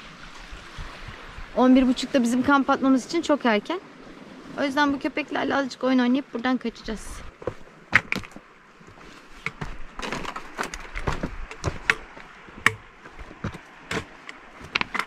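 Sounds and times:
footsteps on rocky trail: 7.0 - 15.0.

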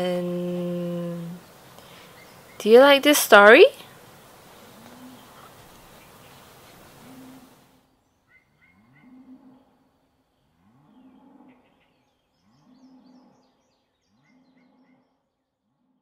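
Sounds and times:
faint low animal calls: 4.3 - 15.3.

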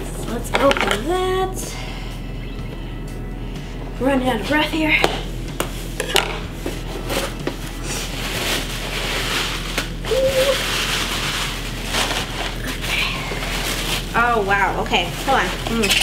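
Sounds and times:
tissue paper rustling: 5.8 - 15.9.

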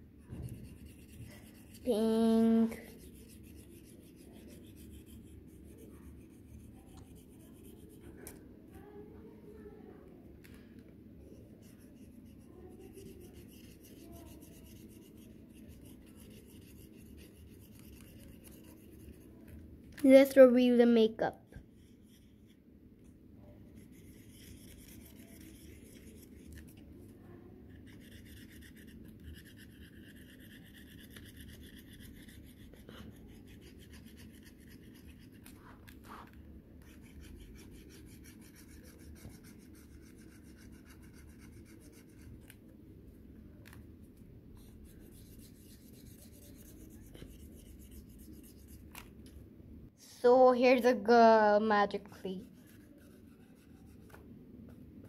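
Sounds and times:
pen rubbing on paper: 0.3 - 2.0, 2.7 - 8.4, 11.6 - 19.4, 23.7 - 26.8, 27.7 - 42.6, 44.6 - 49.1, 52.4 - 54.2.

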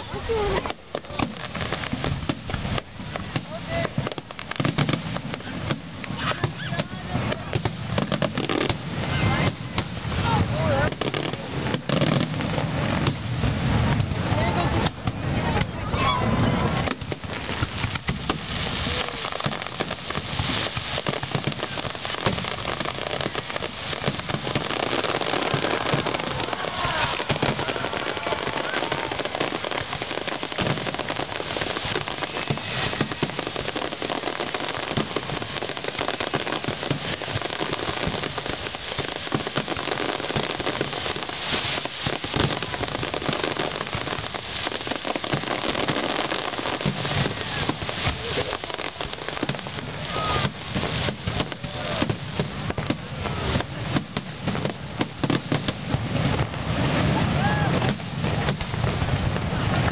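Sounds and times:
fireworks crackling: 0.0 - 59.9.

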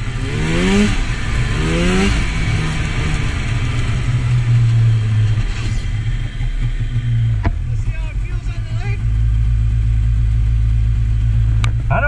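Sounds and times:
snowmobile engine revving: 0.0 - 9.4.

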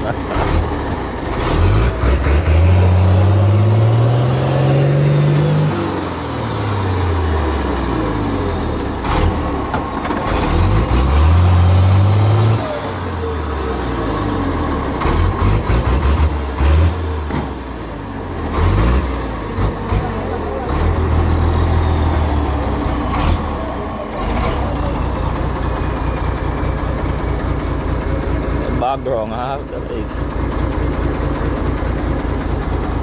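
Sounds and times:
truck engine revving: 0.0 - 33.0
knocks and clatters: 9.0 - 11.0.

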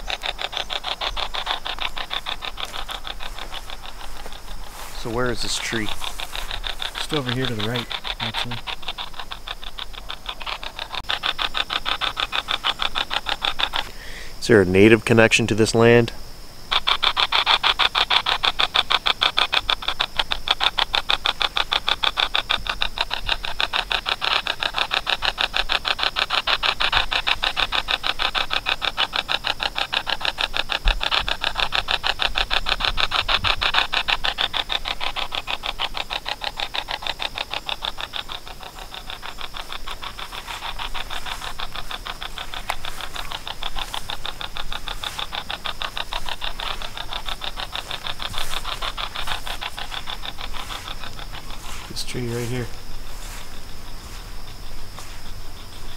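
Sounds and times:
choppy static from phone speaker: 0.0 - 11.3, 38.7 - 54.3.

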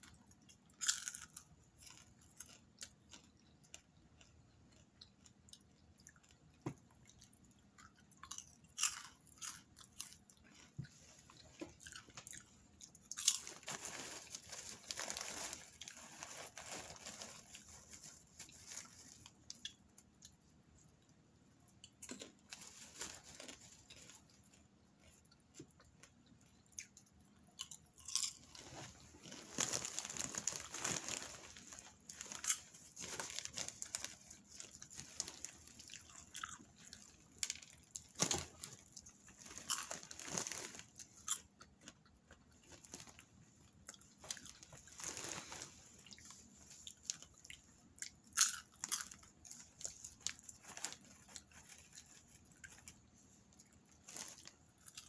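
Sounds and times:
person chewing popcorn: 0.0 - 55.0
plastic bag rustling: 13.2 - 19.5, 22.4 - 24.6, 28.2 - 36.0, 37.0 - 41.0, 44.2 - 47.4, 49.5 - 53.0, 53.9 - 54.6.

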